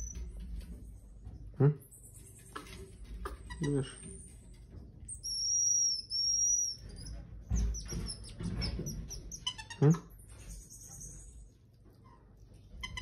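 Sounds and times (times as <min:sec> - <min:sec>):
marmoset whistled calls: 0:05.2 - 0:09.6.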